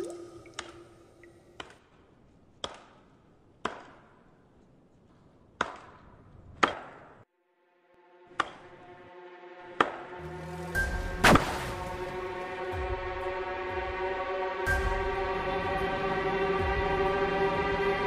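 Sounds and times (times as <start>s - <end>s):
sustained music drone: 7.7s - 18.0s.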